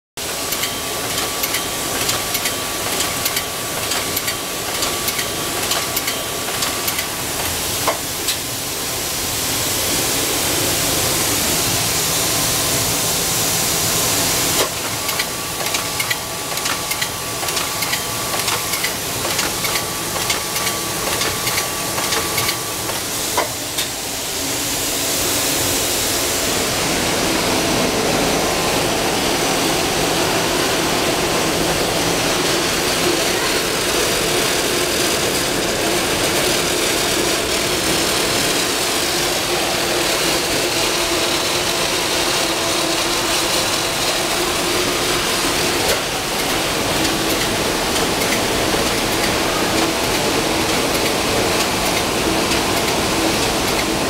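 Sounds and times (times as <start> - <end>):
wrapping machine clicking and clacking: 0.2 - 8.5, 14.5 - 24.0, 33.4 - 54.0.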